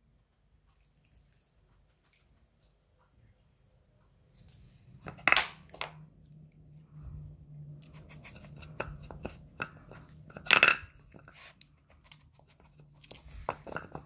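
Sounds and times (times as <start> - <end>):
wooden pieces scraping: 4.4 - 6.0, 7.8 - 14.0.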